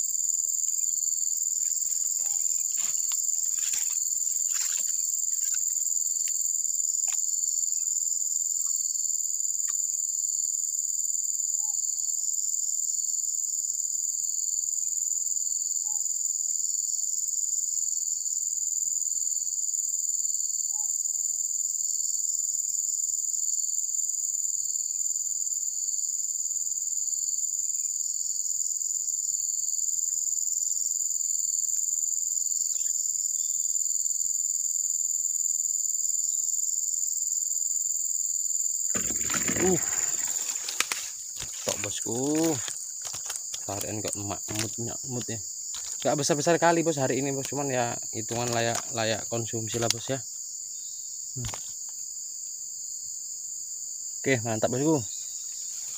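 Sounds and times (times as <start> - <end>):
insect chorus buzzing: 0.0 - 55.9
rustles and taps: 39.0 - 46.1.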